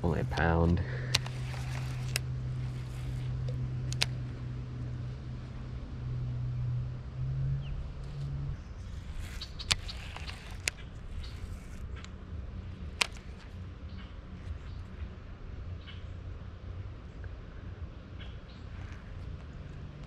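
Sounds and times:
electric trolling motor humming: 0.0 - 15.7.

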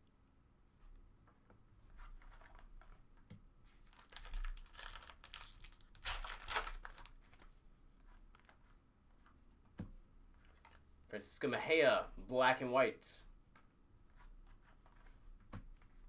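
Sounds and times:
wrapper crinkling and tearing: 3.8 - 7.5.

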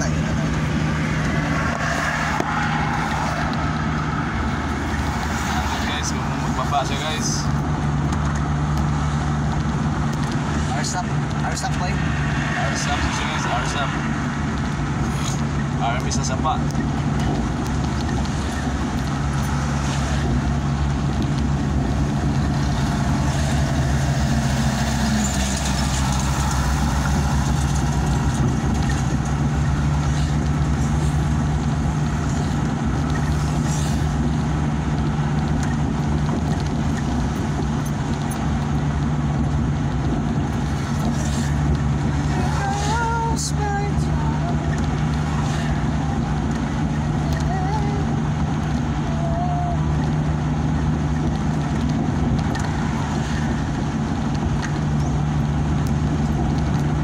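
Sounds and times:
road noise rushing drone: 0.0 - 57.0
vehicle engine hum: 0.0 - 57.0.

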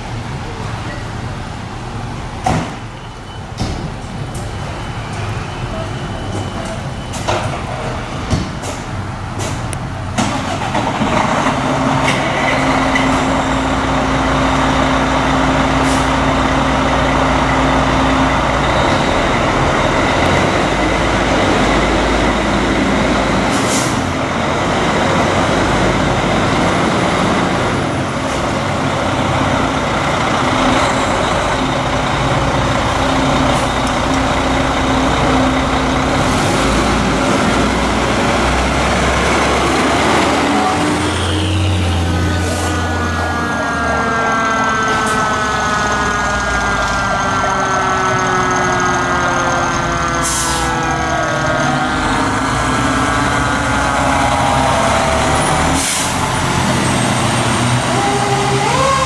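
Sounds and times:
fire truck diesel engines: 0.0 - 59.0
air brakes hissing: 15.8 - 16.3, 23.5 - 24.1, 50.2 - 50.8, 55.4 - 56.4.

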